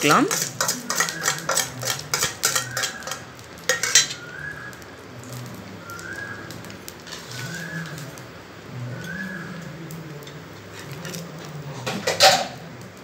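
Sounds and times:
metal utensil scraping a griddle: 0.0s - 4.6s, 7.0s - 8.2s, 8.8s - 12.8s
sandwich sizzling faintly: 0.0s - 13.0s.

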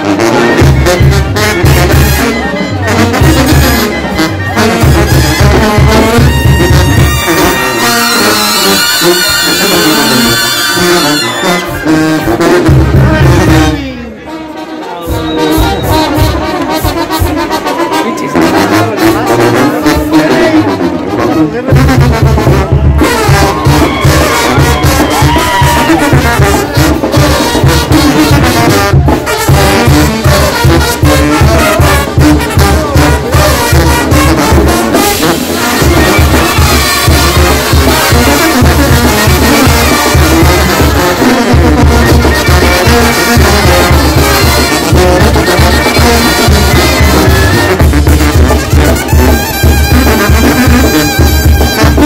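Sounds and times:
trumpets: 0.0s - 52.0s
pulsing bass beat: 0.4s - 13.8s, 15.1s - 17.6s, 21.6s - 52.0s
sousaphones: 31.1s - 49.1s.

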